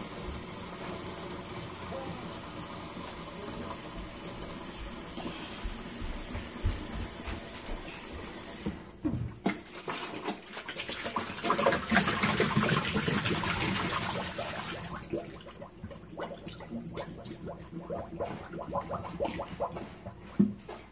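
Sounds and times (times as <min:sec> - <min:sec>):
tap water pouring into jug: 0:00.0 - 0:20.7
plastic jug knocking in sink: 0:08.6 - 0:14.1
water sloshing and splashing: 0:09.3 - 0:20.6.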